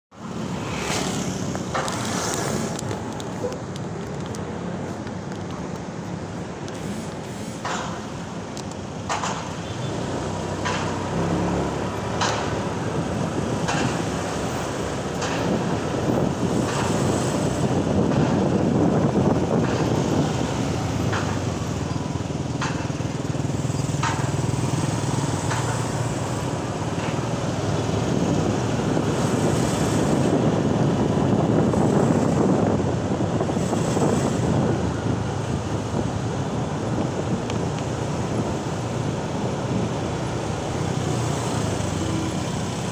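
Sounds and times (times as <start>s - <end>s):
road and wind noise: 0.1s - 42.9s
surrounding car traffic: 0.1s - 42.9s
scooter engine: 9.7s - 30.5s.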